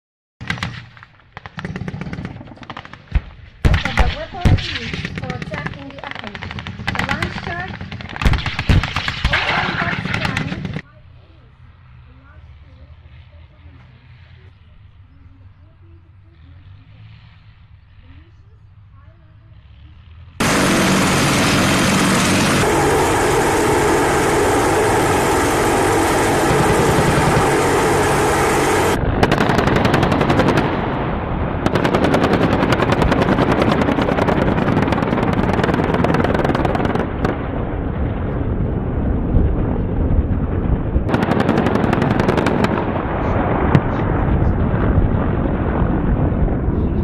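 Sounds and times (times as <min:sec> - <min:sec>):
rotor blades chopping: 0:00.4 - 0:10.8, 0:20.4 - 0:30.9
helicopter engine and rotor: 0:09.3 - 0:11.2, 0:20.4 - 0:30.7, 0:31.7 - 0:37.0.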